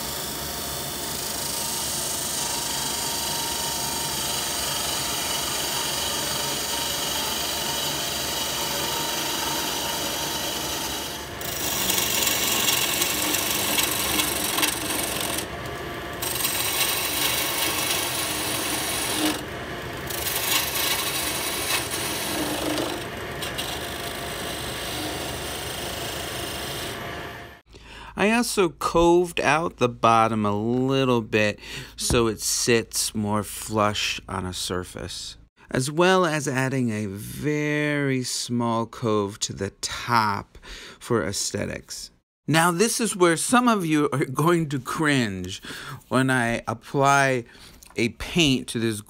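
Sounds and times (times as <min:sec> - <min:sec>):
turning tool cutting wood: 0:00.0 - 0:27.6
wood lathe spinning: 0:00.0 - 0:27.6.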